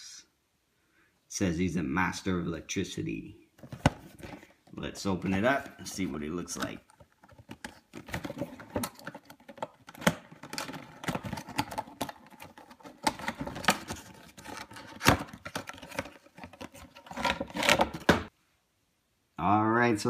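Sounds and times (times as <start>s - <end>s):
cardboard box scraping and crinkling: 10.5s - 18.1s.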